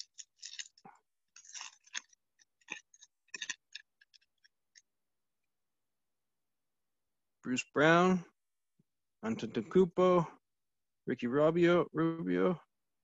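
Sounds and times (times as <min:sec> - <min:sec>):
wrapper crinkling: 0:00.0 - 0:04.9.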